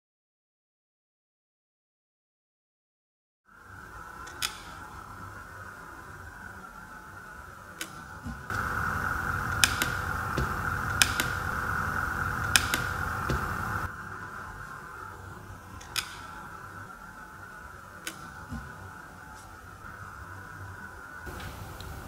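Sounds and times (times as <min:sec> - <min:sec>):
hot-air blower rushing noise: 0:08.2 - 0:17.3, 0:20.3 - 0:22.0
rocker switch clicking: 0:08.5 - 0:13.9.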